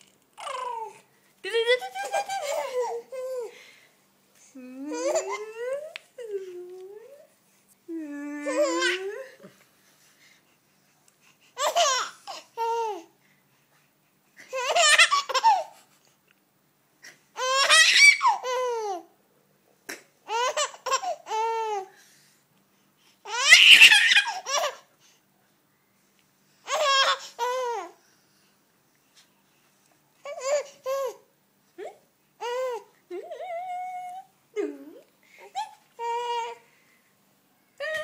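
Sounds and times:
baby laughing: 1.7s - 3.5s, 11.6s - 13.0s, 14.5s - 15.8s, 23.3s - 24.8s.

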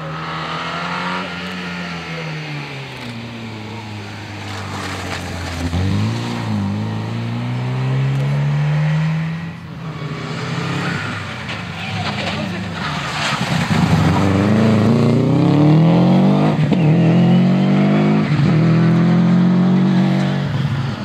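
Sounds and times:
car engine revving past: 13.0s - 20.6s.

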